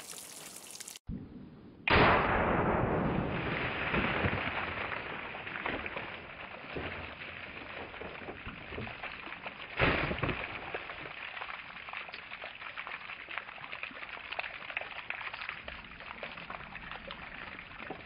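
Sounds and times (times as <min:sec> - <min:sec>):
water splashing from burst jugs: 0:00.0 - 0:01.0, 0:03.6 - 0:18.0
water dripping and trickling: 0:00.0 - 0:01.1, 0:06.0 - 0:18.0
splash and thud: 0:01.9 - 0:11.7.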